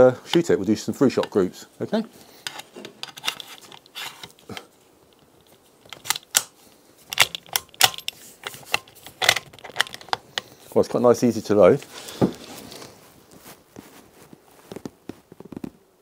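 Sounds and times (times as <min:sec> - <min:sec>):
metallic gun clicks and clacks: 0:07.1 - 0:10.2.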